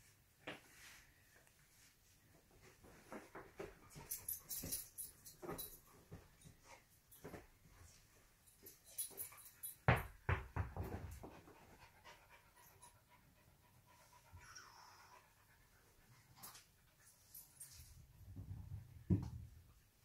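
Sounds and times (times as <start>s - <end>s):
dog panting: 11.1s - 17.0s.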